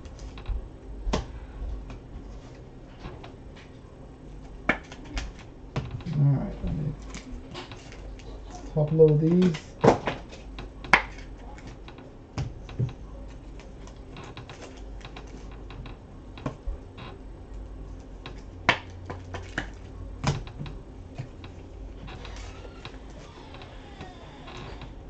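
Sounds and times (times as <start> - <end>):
low steady hum: 0.0 - 25.0
trading cards clicking and tapping: 4.4 - 16.6.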